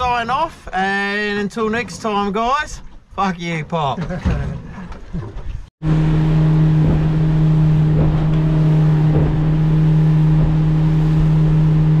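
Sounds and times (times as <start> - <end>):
wind and water rushing: 4.6 - 12.0
outboard motor running: 5.2 - 12.0.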